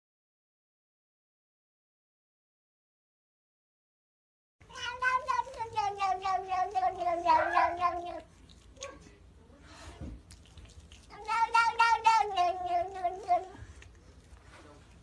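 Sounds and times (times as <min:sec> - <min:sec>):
cat yowling meows: 0:04.7 - 0:08.2, 0:11.1 - 0:13.6.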